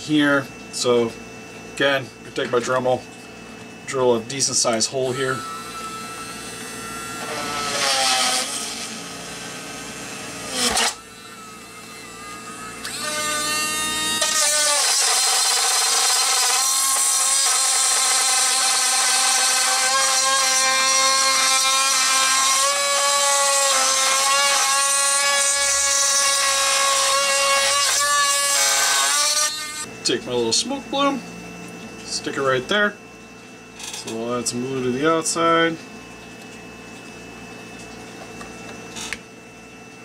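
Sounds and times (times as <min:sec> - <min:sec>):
rotary tool drilling plastic: 0:05.3 - 0:09.2, 0:10.4 - 0:29.9.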